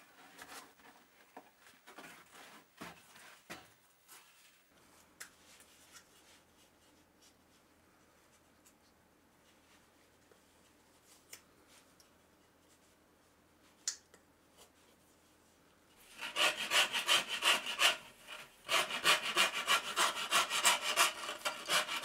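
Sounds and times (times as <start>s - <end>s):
knife scraping wooden frame: 16.1s - 22.0s.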